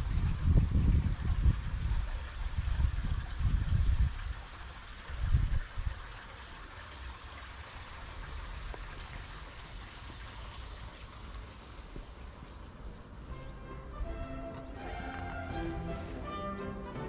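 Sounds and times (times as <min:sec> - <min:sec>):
wind buffeting microphone: 0:00.0 - 0:06.2
water trickling into pool: 0:00.0 - 0:17.0.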